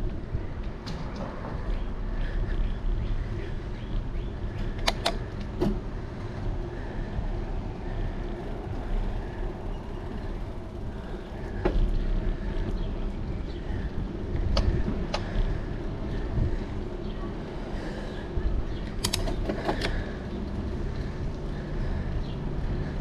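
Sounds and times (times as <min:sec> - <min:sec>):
bicycle tyre rolling noise: 0:00.0 - 0:23.0
wind rumble on microphone: 0:00.0 - 0:23.0
sharp clicks: 0:04.7 - 0:05.5, 0:18.8 - 0:20.0.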